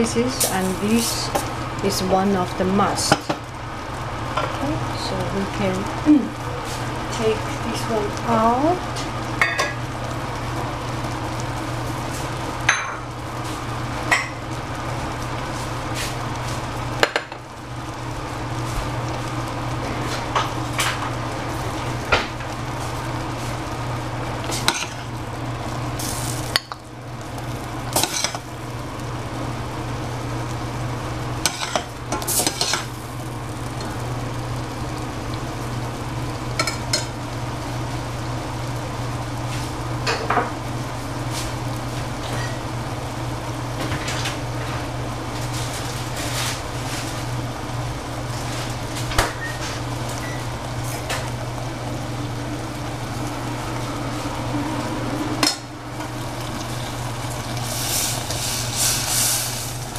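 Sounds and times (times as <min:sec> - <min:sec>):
food sizzling in a frying pan: 0:00.0 - 0:59.9
spatula scraping and clinking on pan: 0:32.4 - 0:32.9
steady low hum: 0:49.7 - 0:59.9.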